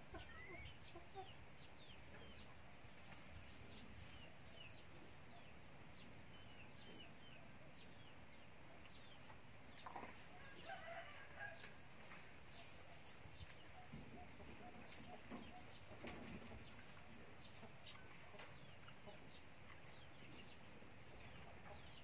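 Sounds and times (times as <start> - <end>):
hen clucking: 0.0 - 2.6, 9.0 - 22.0
chicks peeping: 0.0 - 22.0.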